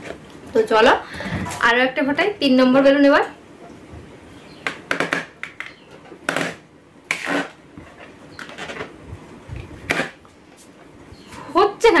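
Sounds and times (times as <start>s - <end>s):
teeth scraping on balloon: 6.3s - 8.9s, 9.8s - 10.2s.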